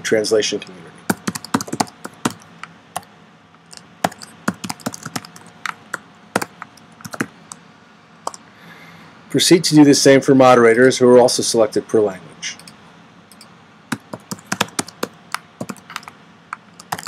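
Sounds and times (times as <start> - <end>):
computer keyboard typing: 1.1 - 3.1, 3.7 - 7.3, 12.6 - 16.1, 16.8 - 17.0.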